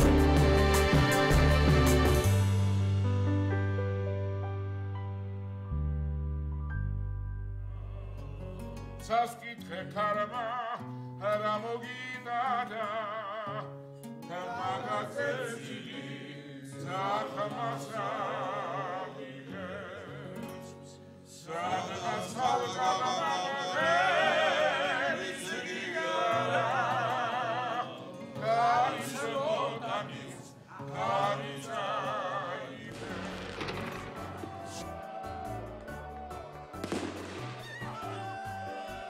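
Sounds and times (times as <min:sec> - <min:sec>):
sustained accompaniment: 0:32.7 - 0:37.6.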